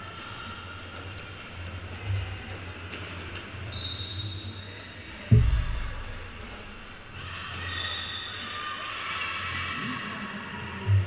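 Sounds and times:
short low thud: 5.3s - 6.7s.

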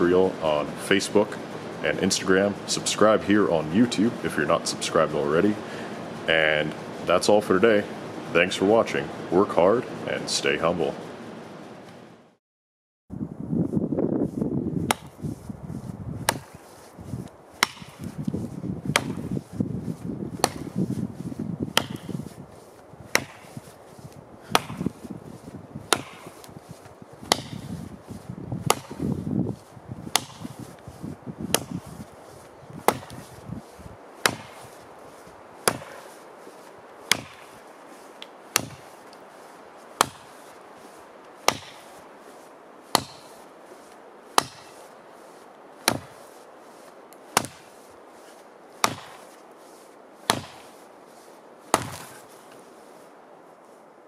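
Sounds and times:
axe chopping into tree trunk: 14.9s - 15.2s, 16.2s - 16.7s, 17.6s - 18.2s, 18.9s - 19.4s, 20.3s - 20.8s, 21.7s - 22.4s, 23.1s - 23.7s, 24.4s - 25.1s, 25.9s - 26.6s, 27.2s - 27.8s, 28.6s - 29.2s, 30.0s - 30.7s, 31.5s - 32.0s, 32.8s - 33.4s, 34.2s - 34.8s, 35.6s - 37.6s, 38.2s - 39.1s, 40.0s - 40.6s, 41.4s - 42.1s, 42.9s - 43.4s, 44.3s - 44.8s, 45.8s - 46.2s, 47.3s - 47.8s, 48.8s - 49.4s, 50.2s - 50.8s, 51.7s - 52.3s.

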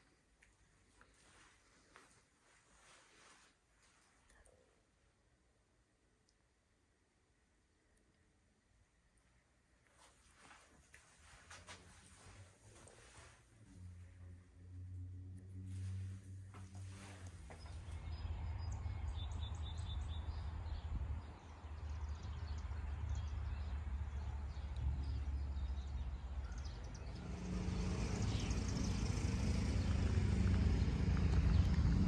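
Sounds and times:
low steady hum: 0.0s - 32.0s
birds chirping: 15.8s - 32.0s
wind rumbling on microphone: 16.9s - 32.0s.

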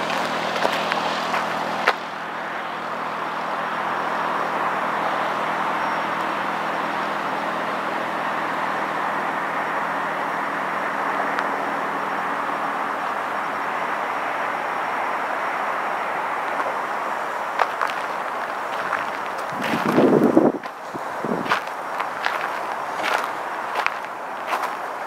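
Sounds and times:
distant traffic hum: 0.0s - 25.0s.

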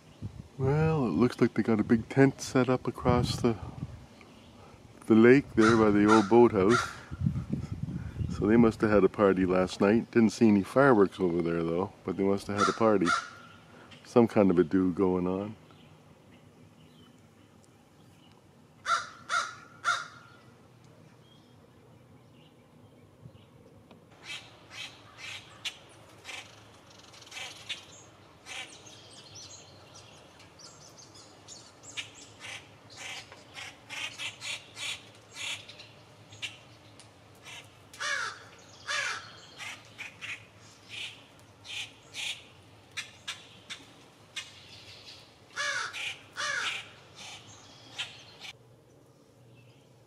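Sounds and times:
blue jays calling: 4.2s - 7.2s, 9.2s - 48.6s.

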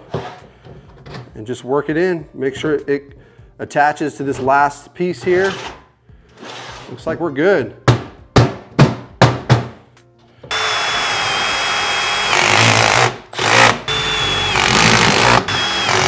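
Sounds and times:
impact driver driving screws: 10.5s - 16.0s.

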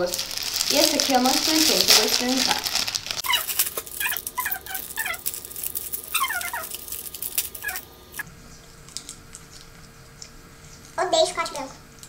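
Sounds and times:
plastic wrapper crinkling: 0.0s - 7.9s
faint steady hum: 0.0s - 12.0s.

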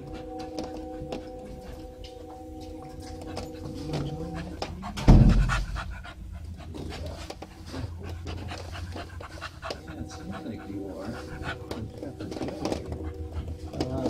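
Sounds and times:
dog panting: 0.0s - 14.0s
loud low thump: 5.0s - 6.0s.

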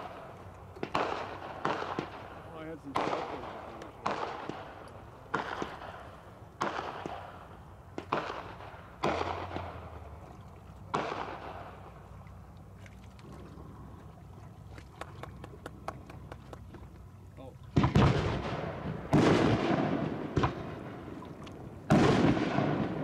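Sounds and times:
firework shells booming: 0.8s - 10.0s, 10.9s - 11.8s, 17.7s - 21.1s, 21.9s - 23.0s.

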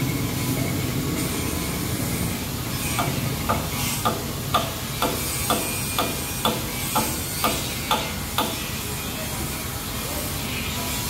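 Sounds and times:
diesel engine rumbling: 0.0s - 5.2s
sharp ticks: 3.0s - 8.6s.

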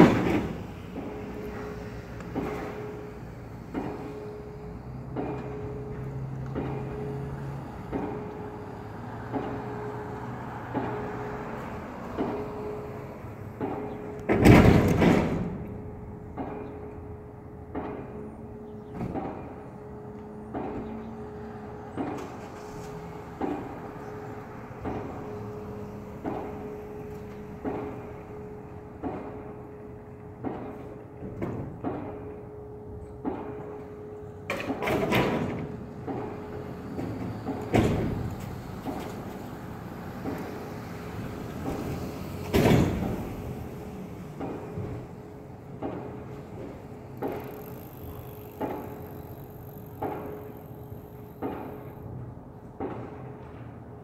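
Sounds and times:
distant pile driver hammer blows: 0.0s - 54.0s
steady ringing tone: 1.0s - 11.6s, 46.8s - 52.1s
steady hum: 44.6s - 52.2s.

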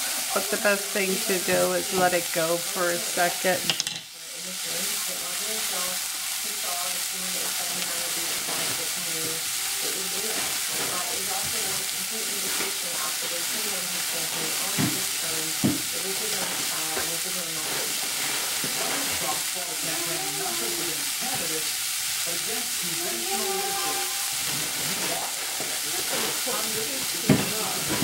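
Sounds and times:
tofu sizzling in oil: 0.0s - 28.0s.

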